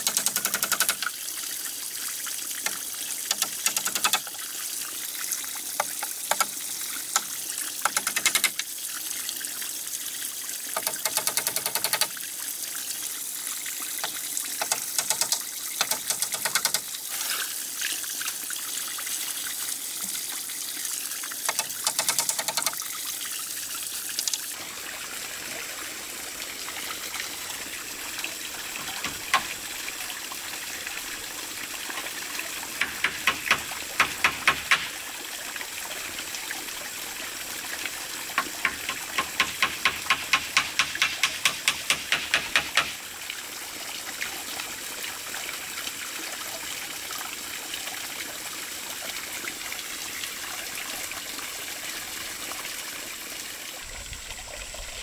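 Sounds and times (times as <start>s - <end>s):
bamboo slats knocking: 0.0s - 1.0s, 3.3s - 4.2s, 7.9s - 8.6s, 10.8s - 12.1s, 14.6s - 16.8s, 21.5s - 22.8s, 28.8s - 29.6s, 38.4s - 43.0s
water splashing and trickling: 0.0s - 55.0s.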